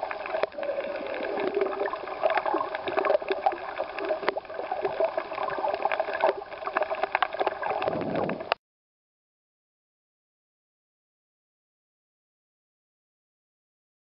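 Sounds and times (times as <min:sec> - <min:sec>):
underwater clicks and crackles: 0:00.0 - 0:08.6
water gurgling and sloshing: 0:00.0 - 0:08.6.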